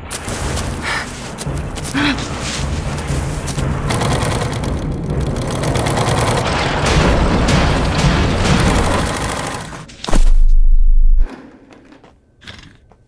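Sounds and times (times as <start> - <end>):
dense sound-design bed: 0.0 - 11.7
sewing machine rattling: 3.9 - 6.5
loud deep boom: 6.4 - 9.2.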